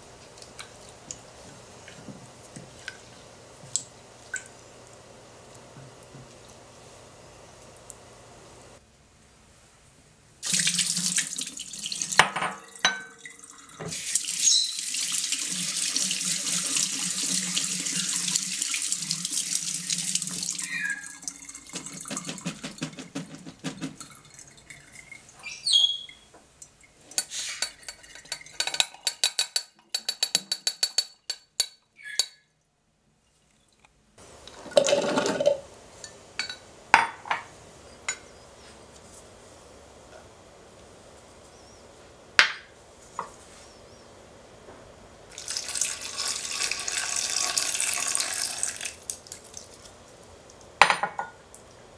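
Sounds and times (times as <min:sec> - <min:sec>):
tap water running: 0:10.4 - 0:31.1, 0:45.3 - 0:50.0
water poured through a strainer: 0:45.3 - 0:49.9.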